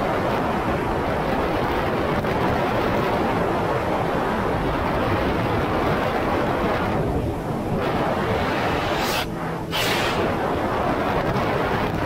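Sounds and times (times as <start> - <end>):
jet ski engine rumble: 0.0 - 12.0
water rushing: 7.9 - 10.8.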